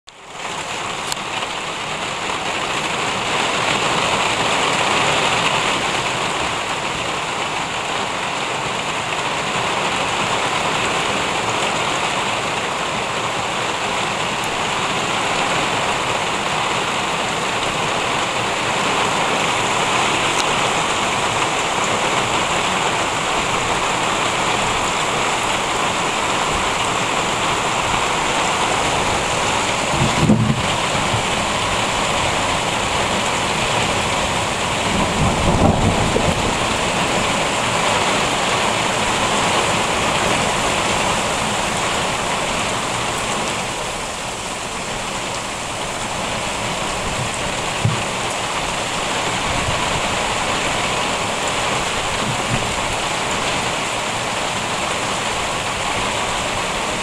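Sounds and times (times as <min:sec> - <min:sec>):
heavy rain falling: 0:00.1 - 0:57.0.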